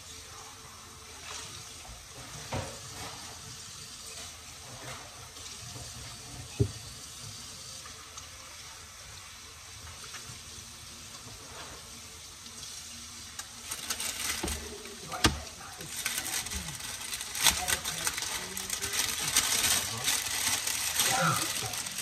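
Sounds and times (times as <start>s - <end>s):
plastic bag crinkling: 13.4s - 22.0s.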